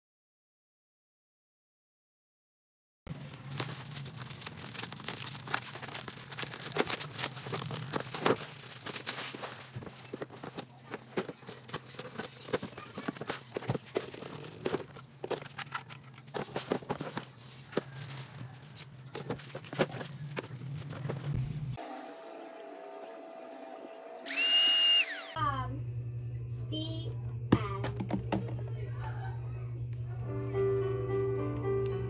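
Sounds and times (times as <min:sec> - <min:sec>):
plastic wrapping tearing and crinkling: 0:03.1 - 0:21.3
cardboard box being opened: 0:03.4 - 0:21.3.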